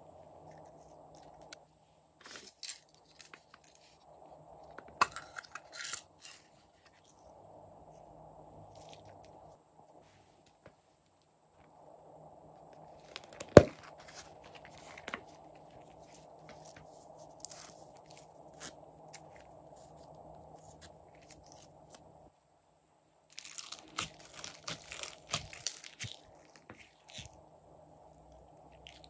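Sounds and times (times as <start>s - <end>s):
crackling and popping of slime: 23.3s - 27.3s
hands squishing slime: 23.4s - 27.3s.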